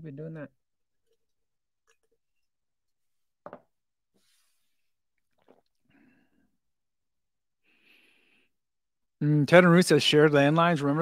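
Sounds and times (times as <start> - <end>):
faint breathing: 7.6 - 8.6.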